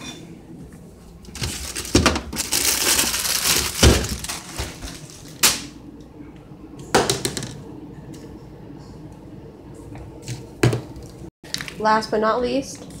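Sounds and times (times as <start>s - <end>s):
crinkling and rustling: 1.2s - 5.5s.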